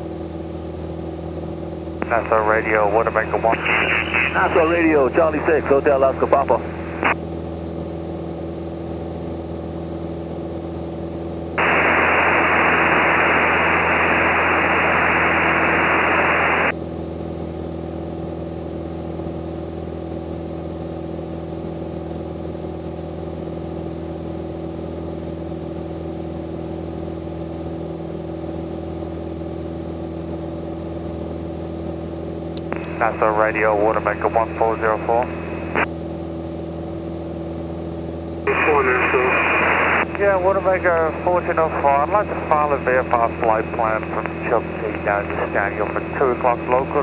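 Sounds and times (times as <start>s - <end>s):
propeller plane engine droning: 0.0s - 47.0s
radio static hiss: 2.0s - 7.2s, 11.6s - 16.7s, 32.6s - 35.9s, 38.5s - 47.0s.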